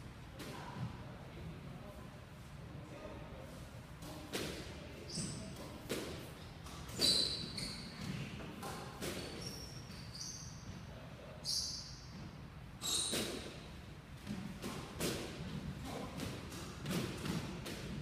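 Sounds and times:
sneaker squeaks: 0:04.1 - 0:13.7
squash ball thuds: 0:14.2 - 0:18.0.

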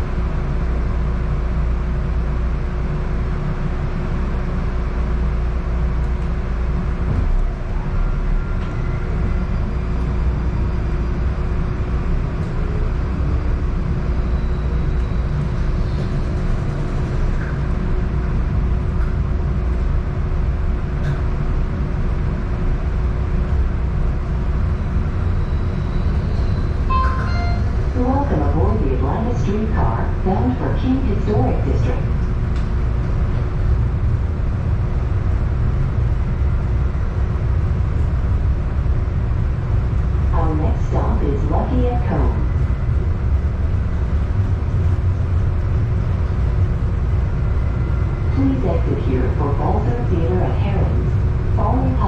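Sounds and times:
streetcar wheels rumbling on track: 0:00.0 - 0:52.0
faint steady hum: 0:24.8 - 0:52.0
short tone: 0:26.4 - 0:27.9.

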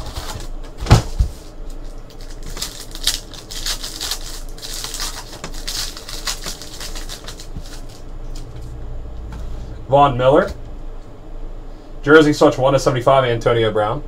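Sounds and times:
wrapper crinkling and tearing: 0:01.6 - 0:08.5.

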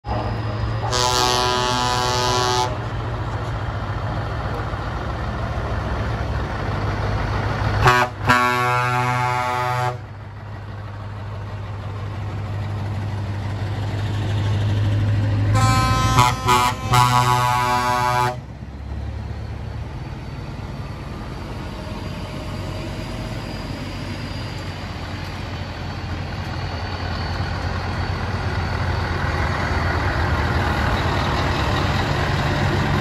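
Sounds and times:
truck engines rumbling: 0:00.0 - 0:33.0
truck horn blasts: 0:00.8 - 0:03.0, 0:07.8 - 0:10.1, 0:15.5 - 0:18.5.

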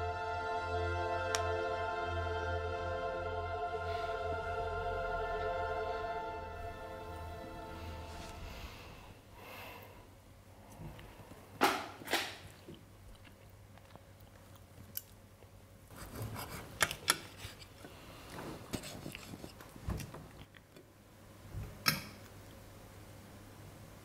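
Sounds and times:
chewing food: 0:12.4 - 0:15.7, 0:17.7 - 0:20.8.

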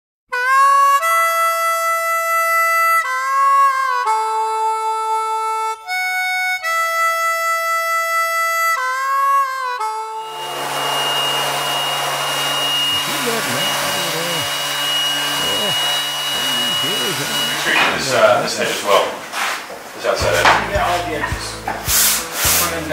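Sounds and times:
music with sustained chords: 0:09.9 - 0:17.8
electric sander on wood: 0:10.2 - 0:18.8, 0:20.2 - 0:22.9.

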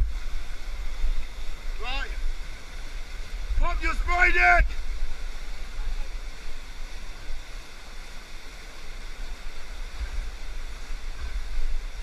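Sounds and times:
whitewater rushing: 0:00.0 - 0:12.0.

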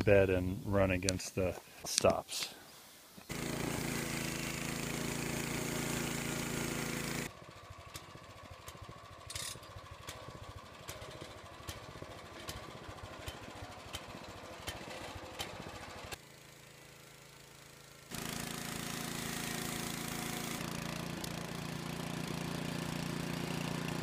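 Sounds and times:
bandsaw engine and blade drone: 0:03.3 - 0:07.3, 0:18.0 - 0:24.0.

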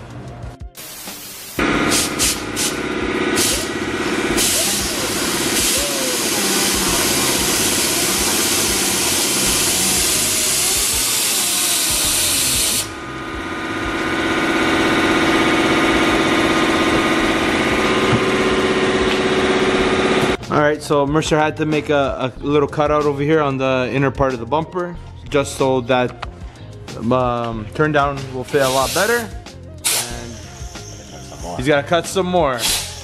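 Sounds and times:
loud air hiss: 0:00.8 - 0:13.0, 0:28.5 - 0:31.6, 0:32.6 - 0:33.0
pneumatic cutting tool whining: 0:01.3 - 0:13.1, 0:28.6 - 0:31.6, 0:32.6 - 0:33.0.

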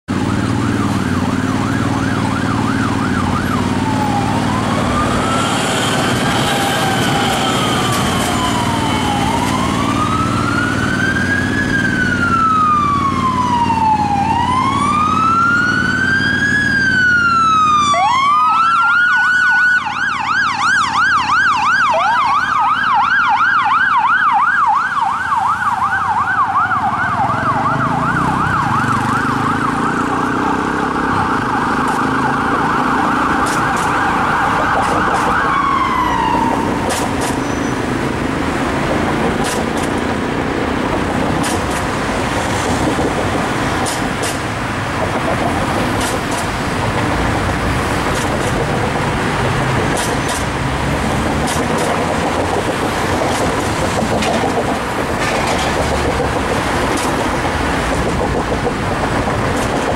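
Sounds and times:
emergency siren yelp and wail: 0:00.1 - 0:59.9
traffic rumble: 0:00.1 - 0:59.9
second siren yelping: 0:00.2 - 0:37.8.

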